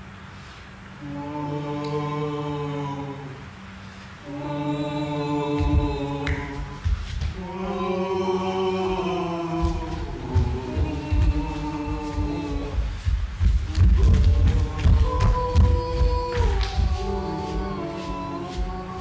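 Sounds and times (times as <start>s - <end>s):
choir singing long notes: 1.0s - 19.0s
low thumps: 5.6s - 7.9s, 8.8s - 19.0s.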